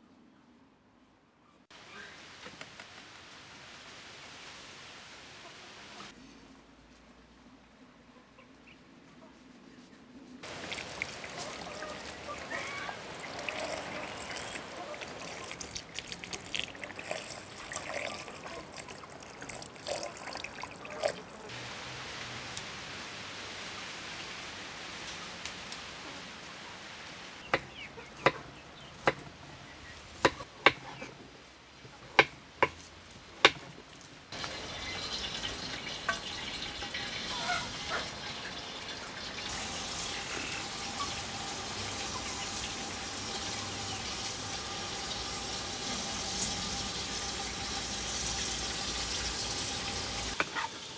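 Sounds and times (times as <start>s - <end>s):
chicken sizzling in hot oil: 10.4s - 20.3s, 34.3s - 50.9s
water splashing over chicken: 10.4s - 23.0s.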